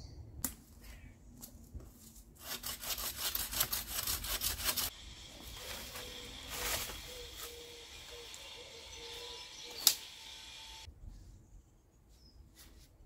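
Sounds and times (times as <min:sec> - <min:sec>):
twigs and leaves scraping and crackling: 0:05.4 - 0:10.0.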